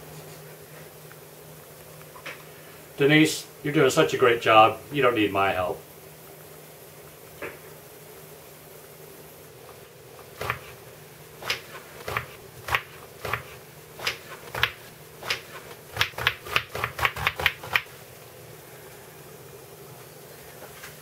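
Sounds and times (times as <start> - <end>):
knife chopping on cutting board: 10.4 - 10.7, 11.4 - 17.8.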